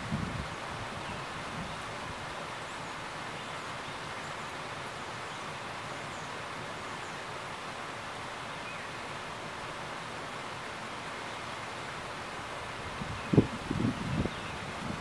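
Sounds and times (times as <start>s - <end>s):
rain falling: 0.0s - 15.0s
wind: 0.0s - 15.0s.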